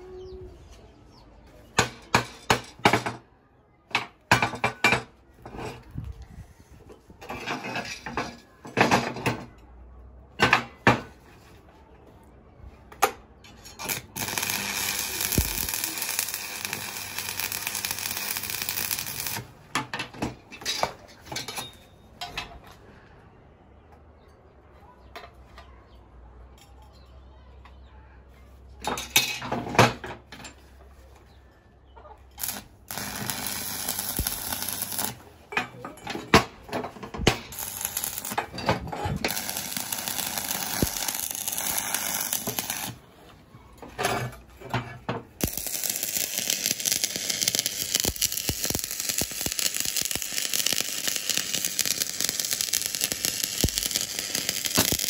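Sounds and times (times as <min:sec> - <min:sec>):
arc welding crackling: 0:13.8 - 0:19.6, 0:32.4 - 0:35.2, 0:37.3 - 0:38.6, 0:39.2 - 0:43.0, 0:45.4 - 0:55.0.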